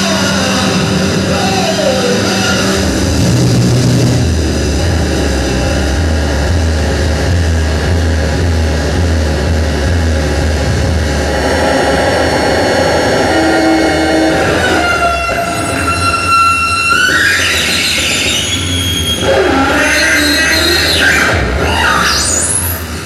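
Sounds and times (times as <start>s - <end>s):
low droning rumble: 0.0s - 16.9s
harsh electronic noise music: 0.0s - 23.0s.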